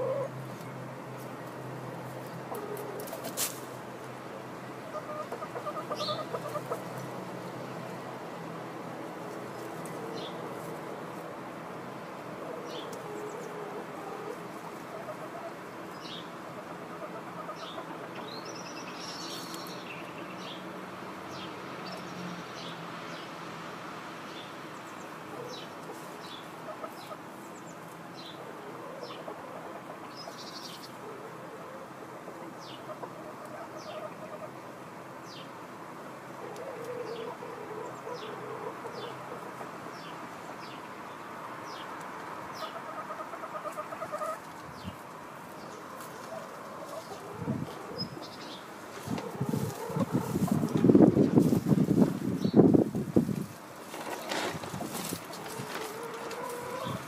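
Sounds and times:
hens clucking softly: 4.7 - 7.2, 12.4 - 18.6, 25.3 - 27.5, 28.4 - 34.8, 42.3 - 48.3, 48.9 - 51.5, 53.9 - 57.0.

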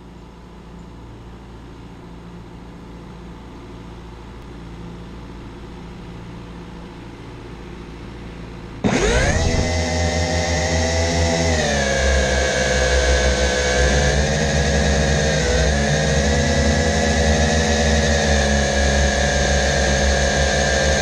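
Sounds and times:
drone propellers whining: 8.8 - 21.0
tractor diesel engine running: 8.8 - 21.0.

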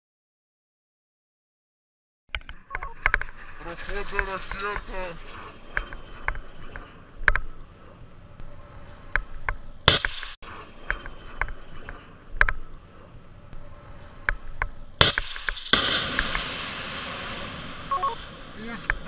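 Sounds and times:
sharp clicks: 2.3 - 16.5
loud burst: 2.9 - 19.0
rocket motor hissing rush: 3.2 - 19.0
missile launch blasts: 15.0 - 19.0.

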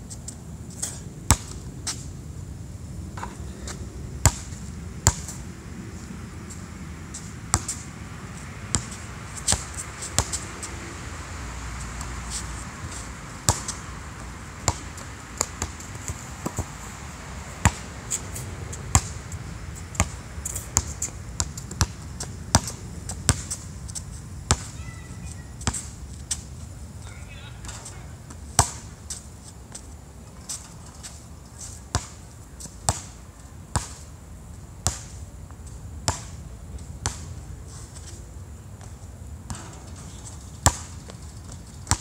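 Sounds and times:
basketball bouncing on hard court: 1.3 - 1.6, 4.2 - 5.4, 7.5 - 7.8, 8.7 - 10.4, 13.4 - 13.8, 14.6 - 16.7, 17.6 - 17.8, 18.8 - 19.2, 19.9 - 23.6, 24.5 - 26.4, 28.6 - 28.9, 31.9 - 32.2, 32.9 - 34.0, 40.6 - 41.0.

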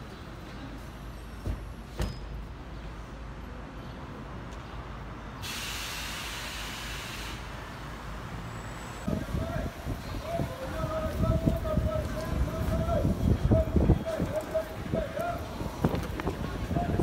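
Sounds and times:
street traffic rumble: 0.0 - 17.0
air brakes hiss: 5.4 - 7.6.

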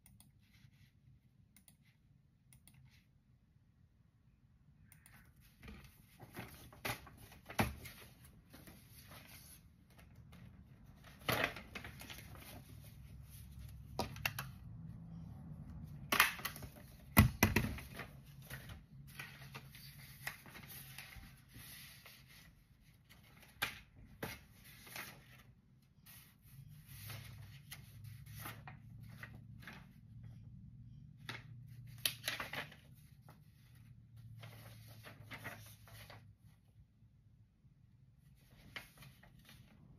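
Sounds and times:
paper rustling: 5.4 - 15.2, 15.9 - 30.4, 31.2 - 36.6, 38.3 - 39.9.

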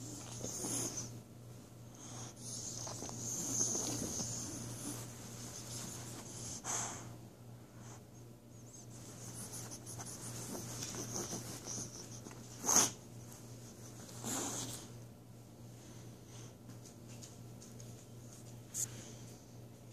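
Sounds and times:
dog sniffing and snuffling: 0.0 - 1.2, 1.8 - 15.0.

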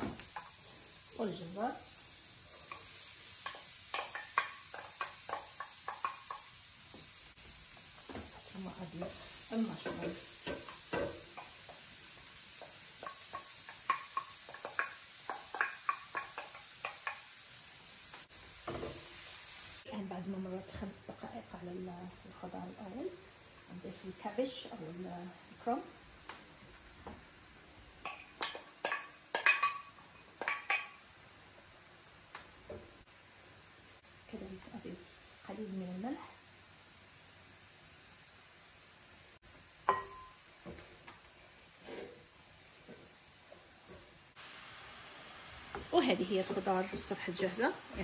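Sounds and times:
vegetables sizzling in a frying pan: 0.0 - 48.0
kitchenware clinking against pan: 28.0 - 31.0, 39.9 - 40.4
cabbage scraped into pan: 41.7 - 42.3.

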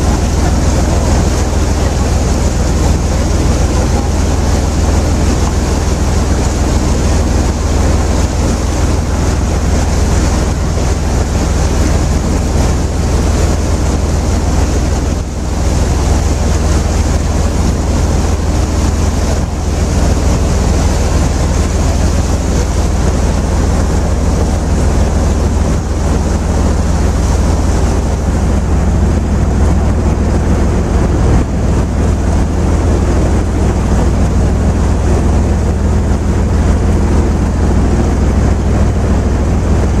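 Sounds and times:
boat engine running: 0.0 - 40.0
water rushing along hull: 0.0 - 40.0
wind buffeting microphone: 0.0 - 40.0.

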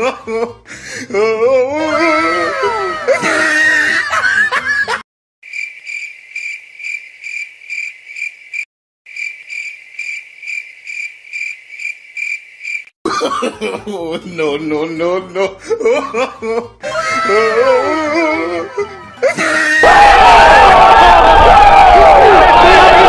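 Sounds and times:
cricket chirping: 5.4 - 12.9.

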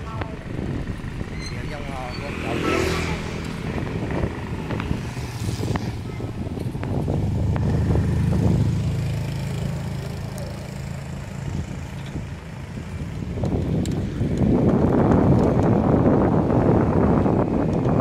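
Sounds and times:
motorbike engine passing: 0.0 - 12.9.

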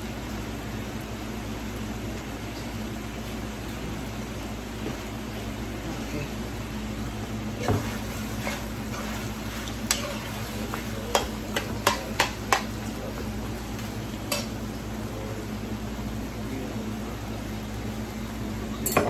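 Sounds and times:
skillet sizzling: 6.4 - 16.5
metal spoon knocking pan: 11.1 - 12.8.

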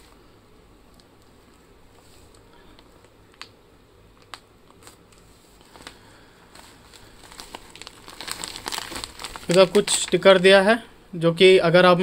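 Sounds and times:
plastic bag crinkling: 4.2 - 10.7.

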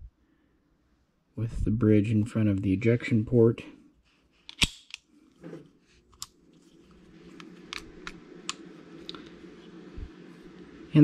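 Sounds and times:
faint steady hum: 0.0 - 11.0
metal clicks of pistol handling: 4.4 - 5.1.

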